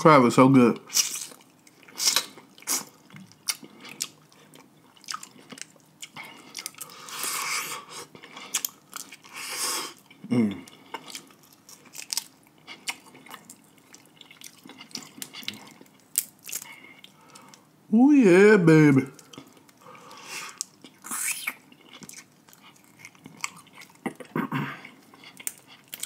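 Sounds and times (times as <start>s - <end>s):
chewing and crunching: 0.9s - 17.7s, 19.2s - 26.0s.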